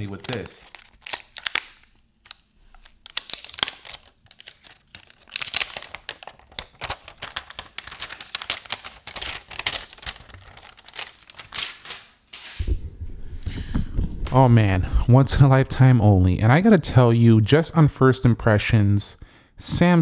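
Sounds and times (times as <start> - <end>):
plastic film crackling as peeled: 0.0 - 12.6.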